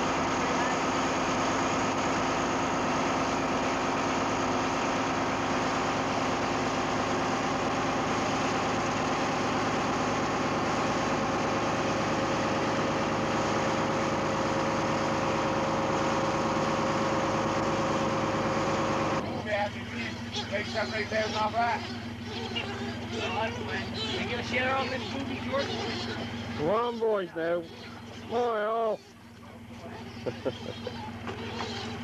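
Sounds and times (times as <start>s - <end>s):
boat engine droning: 0.0s - 32.0s.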